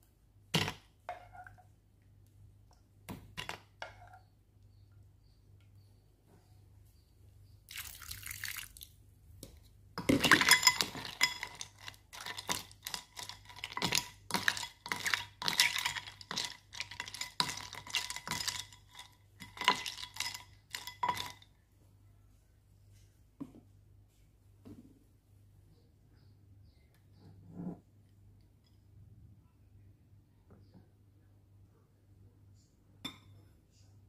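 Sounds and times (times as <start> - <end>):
ice cubes clinking against glass: 10.0 - 21.4.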